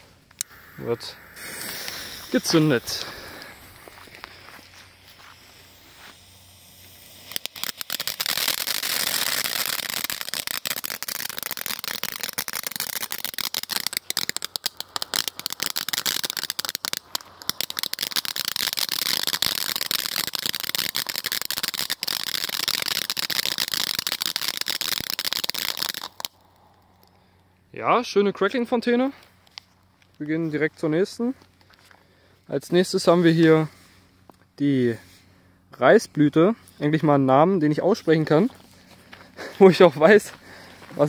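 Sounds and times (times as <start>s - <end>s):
firework fountain hissing and crackling: 0.0s - 26.4s.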